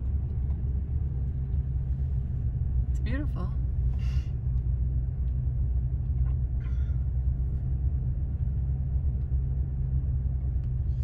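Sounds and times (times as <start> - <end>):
car engine and tyre noise: 0.0 - 11.0.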